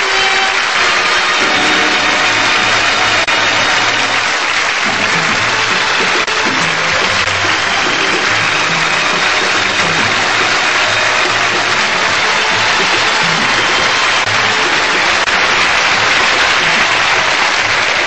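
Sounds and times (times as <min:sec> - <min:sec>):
audience applauding: 0:00.0 - 0:18.0
theme music: 0:00.0 - 0:18.0.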